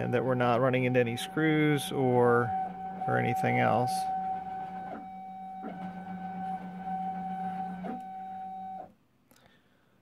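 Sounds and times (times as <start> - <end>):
stepper motors whining: 0.0 - 8.9.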